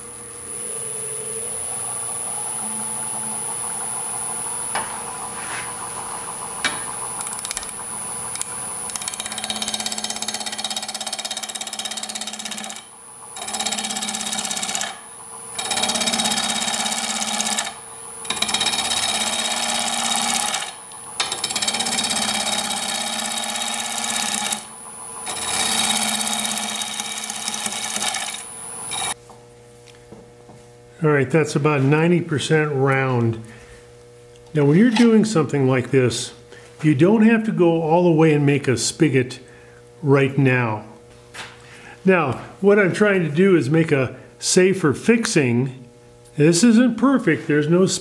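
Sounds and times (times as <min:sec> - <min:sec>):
wood lathe whining: 0:05.2 - 0:29.2
gouge cutting wood: 0:08.9 - 0:12.8, 0:13.4 - 0:15.0, 0:15.6 - 0:29.2.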